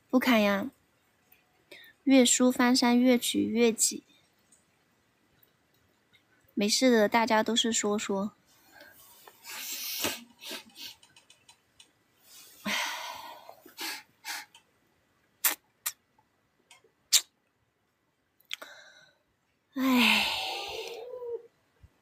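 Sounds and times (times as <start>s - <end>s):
person breathing in bursts: 12.2s - 14.6s, 18.6s - 20.8s.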